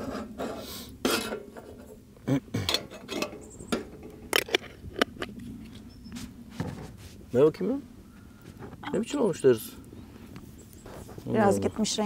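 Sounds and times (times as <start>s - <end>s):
dishes and pots clattering: 0.0s - 1.9s, 2.6s - 5.1s.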